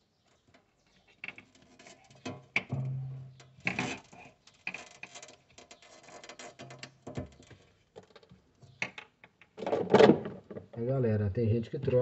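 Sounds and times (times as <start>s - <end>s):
hand tool and wires clicking: 0.5s - 9.6s.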